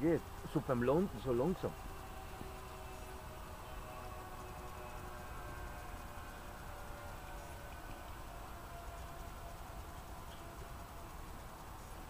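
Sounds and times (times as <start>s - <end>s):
model plane propellers droning: 0.0s - 12.0s.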